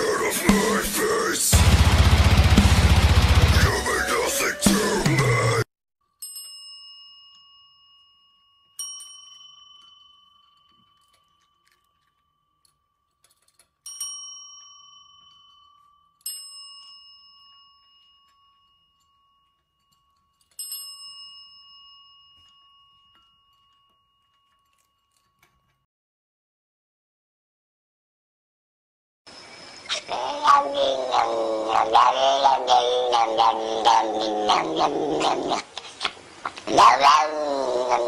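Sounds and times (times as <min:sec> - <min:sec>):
desk service bell ringing: 0:06.2 - 0:12.8, 0:13.8 - 0:25.8.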